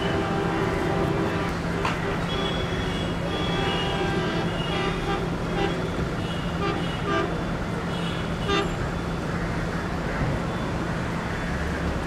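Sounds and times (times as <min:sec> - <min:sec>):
diesel locomotive horn toots: 0:00.0 - 0:08.8
diesel engine drone: 0:00.0 - 0:12.0.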